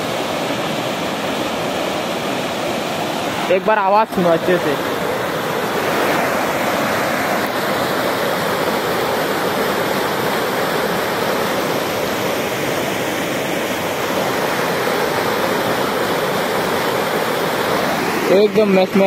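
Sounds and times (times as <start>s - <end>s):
river rushing over stones: 0.0s - 19.0s.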